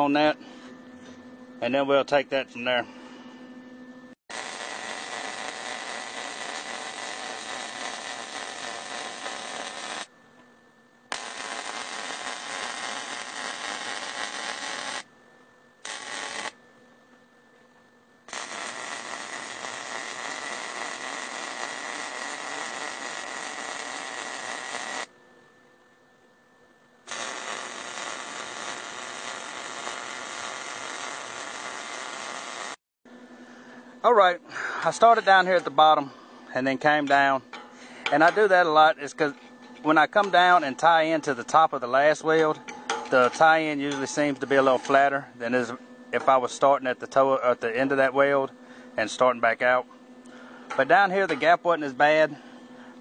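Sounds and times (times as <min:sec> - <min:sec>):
welding arc hissing: 0:04.3 - 0:10.1, 0:11.1 - 0:15.1, 0:15.8 - 0:16.6, 0:18.3 - 0:25.1, 0:27.1 - 0:32.8.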